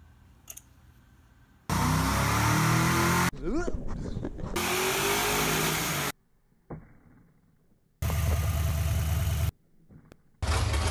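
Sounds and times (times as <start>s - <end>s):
car engine revving on dyno: 1.7s - 3.3s, 4.6s - 6.1s
engine running with deep rumble: 8.0s - 10.9s.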